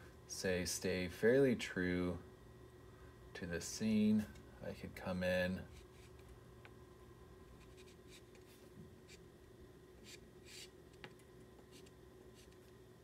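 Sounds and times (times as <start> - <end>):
pastel scratching on paper: 7.6 - 9.2, 10.0 - 10.8.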